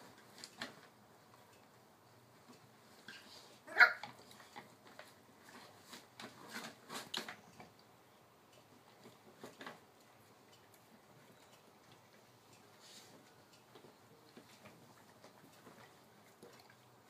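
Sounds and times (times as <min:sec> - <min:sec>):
light clicks and rustles: 0:00.0 - 0:07.9, 0:08.5 - 0:17.0
puppy yip: 0:03.7 - 0:04.1.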